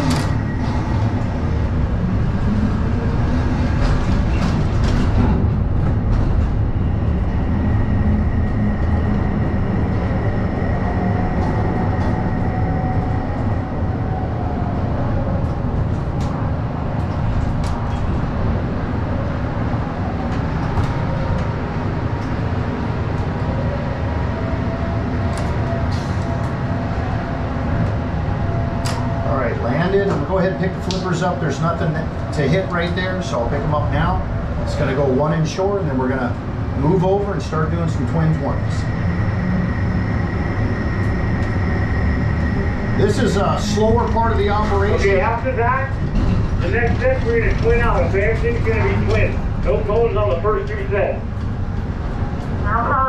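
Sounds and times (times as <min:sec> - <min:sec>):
crane mechanical rumble: 0:00.0 - 0:53.0.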